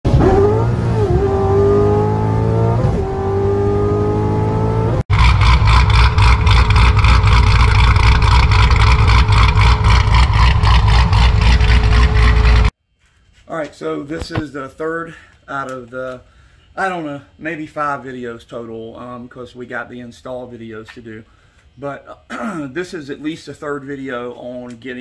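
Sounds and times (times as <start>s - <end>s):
car engine accelerating hard: 0.1s - 12.7s.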